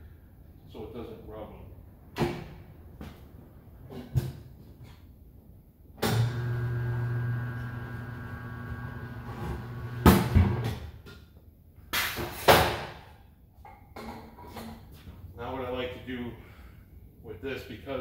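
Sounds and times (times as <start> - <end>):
tire changer motor humming: 6.0 - 10.6.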